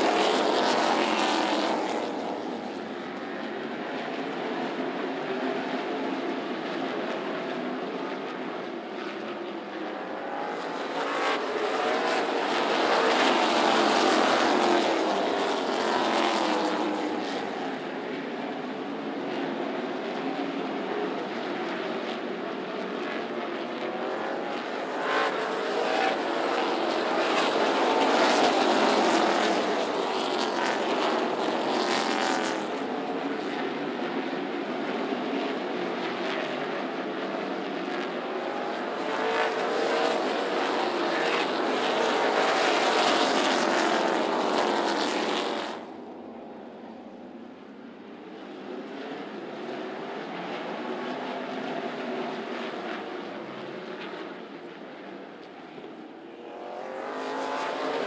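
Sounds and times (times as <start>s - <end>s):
race cars passing: 0.0s - 46.0s, 48.3s - 58.0s.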